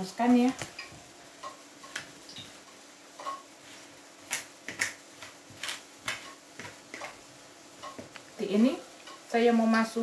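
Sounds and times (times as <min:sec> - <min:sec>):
fork tapping plastic bowl: 0:07.8 - 0:08.2.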